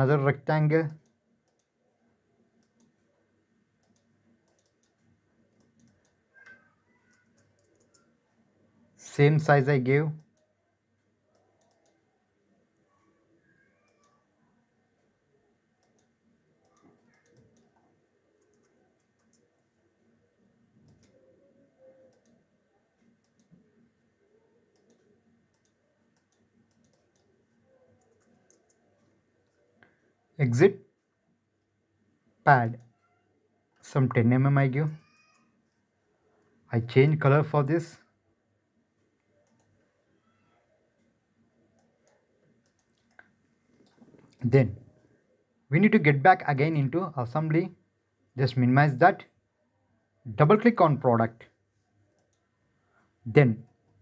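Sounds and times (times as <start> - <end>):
computer mouse clicks: 0.9 - 1.8, 2.6 - 3.0, 3.8 - 8.2, 10.2 - 10.5, 11.3 - 12.1, 12.8 - 14.3, 15.8 - 19.7, 20.8 - 23.8, 24.7 - 30.0, 39.3 - 40.4, 41.7 - 44.4, 52.1 - 52.5.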